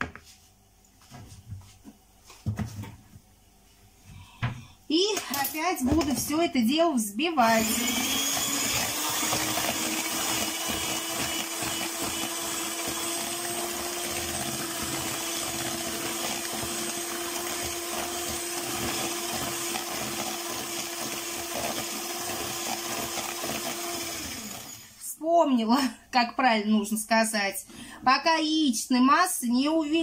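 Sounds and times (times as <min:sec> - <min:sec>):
electric hand mixer running: 0:07.4 - 0:25.0.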